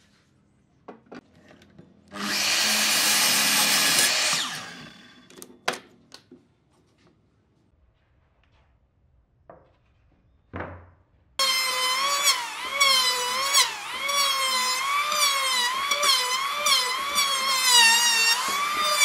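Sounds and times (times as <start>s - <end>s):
electric planer whining: 2.2s - 5.2s, 11.4s - 19.0s.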